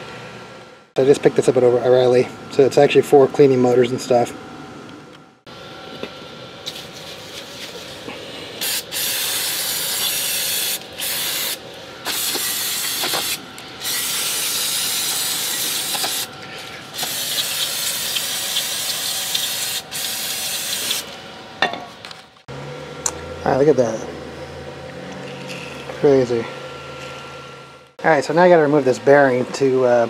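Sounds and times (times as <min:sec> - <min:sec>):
aerosol can spraying: 0:08.6 - 0:16.3, 0:17.0 - 0:21.0.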